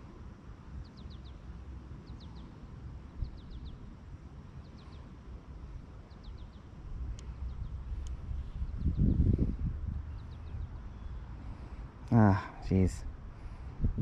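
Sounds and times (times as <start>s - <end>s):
bird chirping: 0.8s - 3.9s, 4.6s - 5.1s, 6.0s - 12.9s
low rumble: 12.7s - 14.0s.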